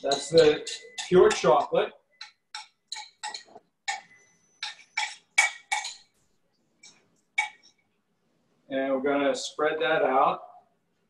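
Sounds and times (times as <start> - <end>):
spatula scraping glass bowl: 0.0 - 1.7, 2.5 - 6.1
spatula tapping glass: 0.0 - 6.1.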